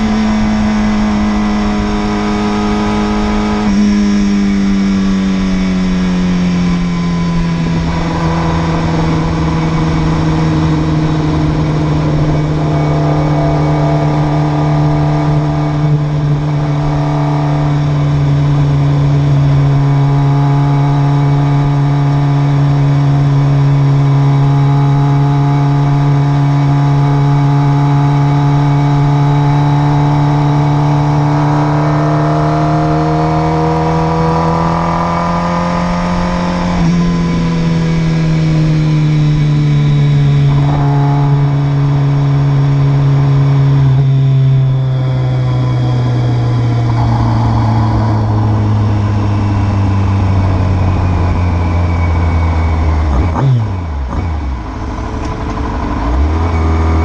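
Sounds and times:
motorcycle engine cruising: 0.0s - 57.0s.

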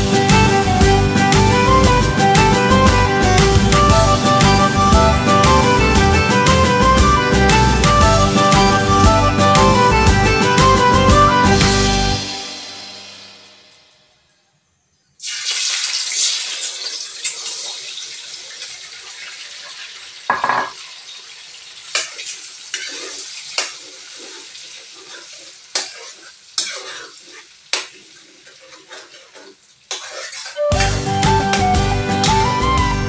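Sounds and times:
eggs sizzling in hot oil: 15.2s - 32.7s
metal spatula scraping wok: 21.9s - 30.9s.

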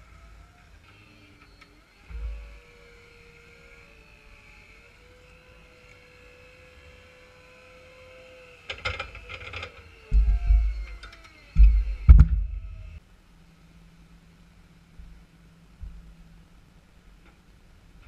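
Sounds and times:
hydraulic pump motor whining: 0.0s - 13.0s
low thump: 11.6s - 13.0s, 15.8s - 16.2s.

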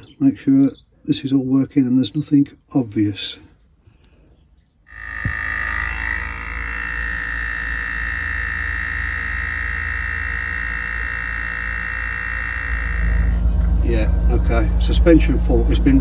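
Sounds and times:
air compressor whining: 4.9s - 13.6s.

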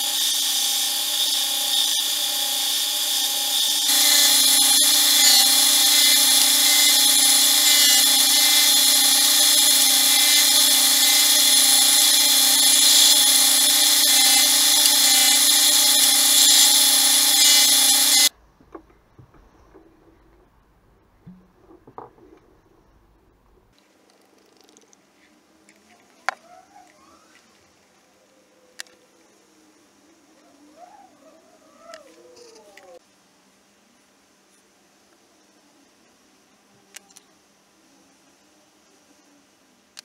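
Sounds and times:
disc sander running: 0.0s - 18.3s.

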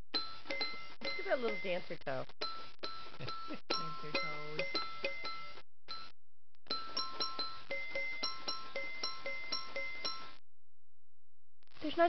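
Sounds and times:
toy xylophone notes: 0.1s - 6.1s, 6.7s - 10.3s.

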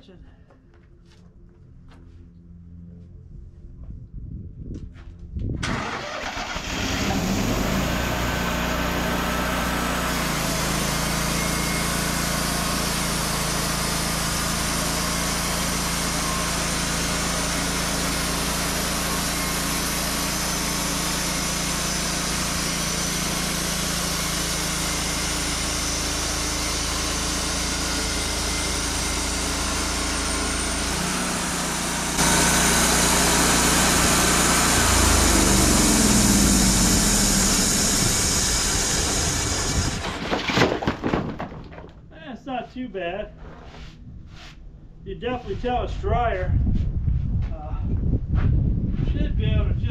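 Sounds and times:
sawmill engine running: 5.6s - 41.8s.

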